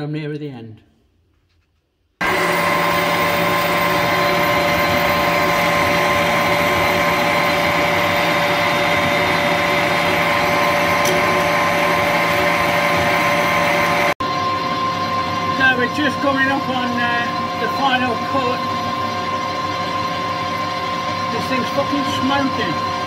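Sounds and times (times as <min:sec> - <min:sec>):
metal lathe whine: 0:02.2 - 0:23.0.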